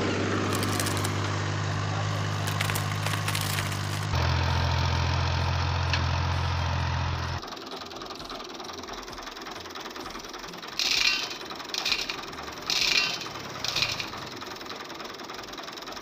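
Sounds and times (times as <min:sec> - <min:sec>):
grains rattling in plastic bowl: 0:00.5 - 0:01.1, 0:02.4 - 0:04.2.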